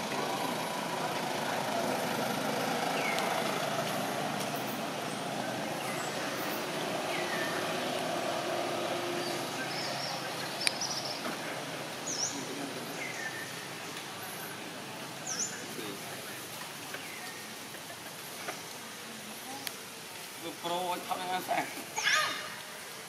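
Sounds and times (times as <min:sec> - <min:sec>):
vehicle engine running: 0:00.0 - 0:15.7.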